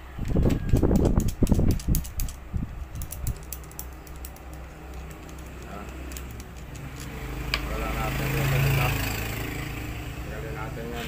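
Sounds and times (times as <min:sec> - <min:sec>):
small metal parts clicking: 0:00.2 - 0:07.2.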